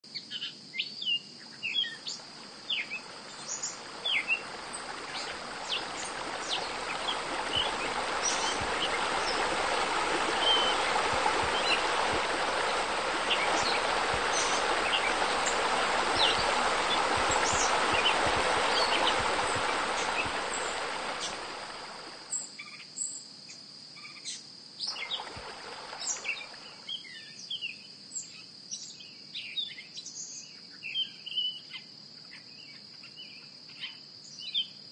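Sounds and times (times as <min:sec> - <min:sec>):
insect drone: 0:00.1 - 0:27.6
rushing noise: 0:03.0 - 0:22.2.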